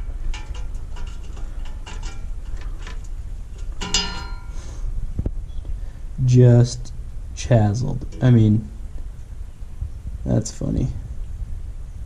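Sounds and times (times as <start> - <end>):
metallic clicks and scrapes: 0.0 - 4.5.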